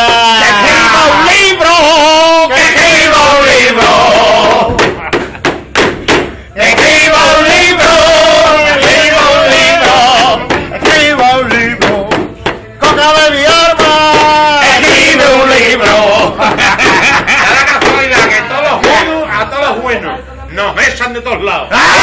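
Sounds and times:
man singing flamenco style: 0.0 - 4.9, 6.6 - 19.2
short sharp hits: 3.7 - 8.0.

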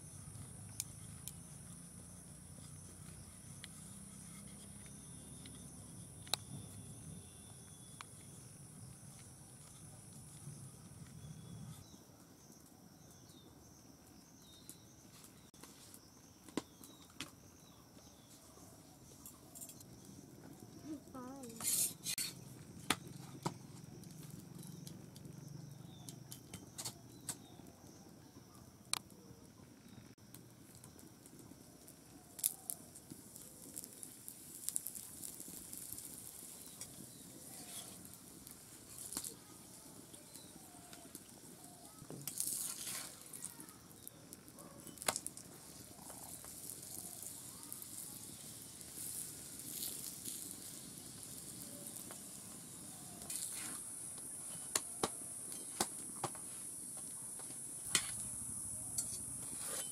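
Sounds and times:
flatbread sizzling in oil: 30.7 - 57.0.

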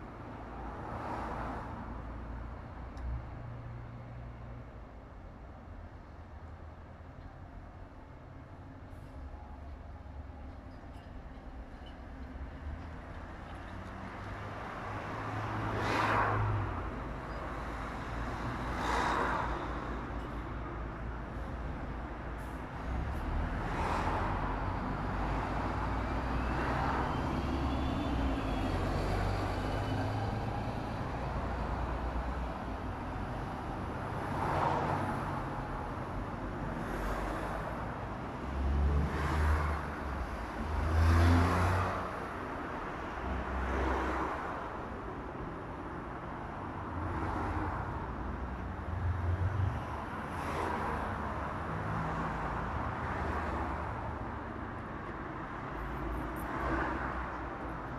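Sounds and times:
cars passing: 12.3 - 57.9.

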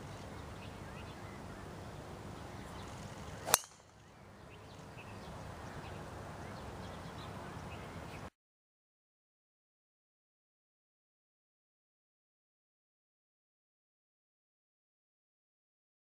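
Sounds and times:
outdoor background noise: 0.0 - 8.4
golf club striking ball: 3.3 - 4.0.

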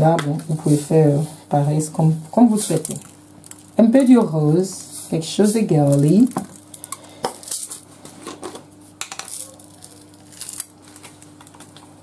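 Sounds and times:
low steady hum: 0.0 - 12.0
sprinkles clicking in a jar: 9.1 - 10.7.

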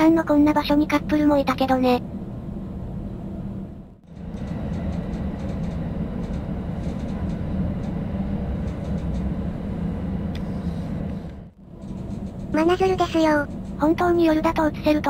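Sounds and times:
train wheels rumbling on rails: 4.0 - 15.0.

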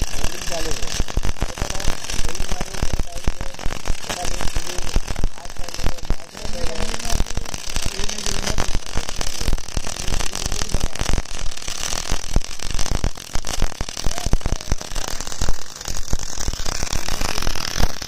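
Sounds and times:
welding arc crackling and hissing: 0.0 - 18.0.

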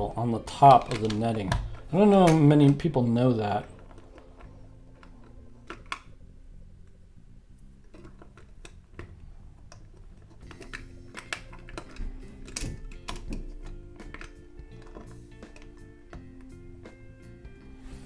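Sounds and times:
plastic bricks clicking together: 0.6 - 6.1, 7.8 - 16.5.

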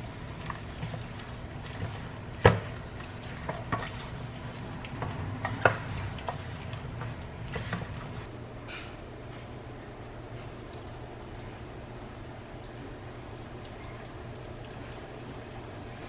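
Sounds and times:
meat rustling and squishing in coating: 0.0 - 8.3.

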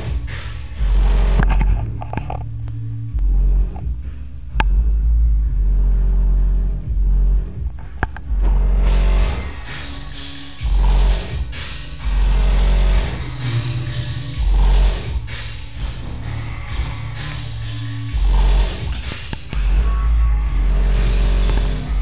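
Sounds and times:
deep bass notes through subwoofer: 0.0 - 22.0.

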